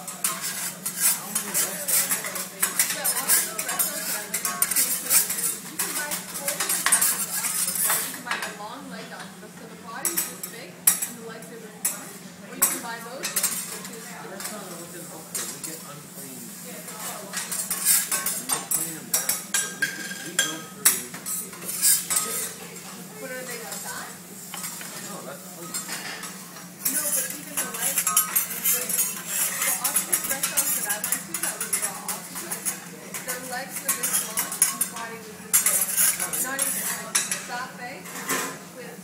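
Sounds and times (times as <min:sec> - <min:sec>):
metal spatulas scraping hotplate: 0:00.0 - 0:08.6, 0:16.5 - 0:38.6.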